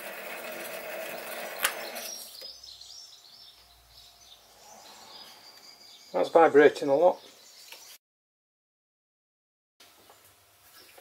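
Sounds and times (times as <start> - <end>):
lathe motor humming: 0.0 - 2.2.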